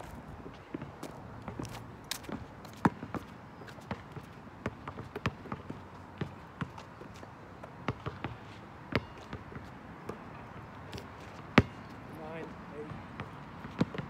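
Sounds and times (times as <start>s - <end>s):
running footsteps on asphalt: 0.0s - 4.4s
basketball bouncing on asphalt: 0.0s - 12.0s, 12.8s - 14.0s.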